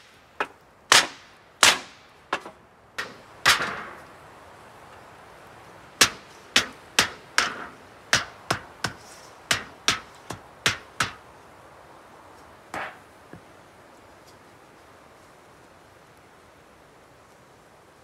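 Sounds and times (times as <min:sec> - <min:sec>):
blade chopping wood: 0:00.4 - 0:04.0, 0:06.0 - 0:11.2, 0:12.7 - 0:13.0.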